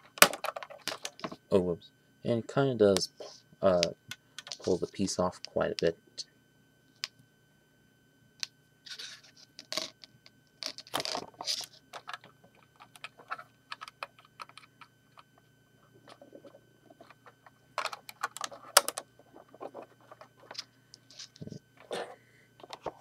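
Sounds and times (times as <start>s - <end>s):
plastic bricks clicking and scraping: 16.1s - 20.6s.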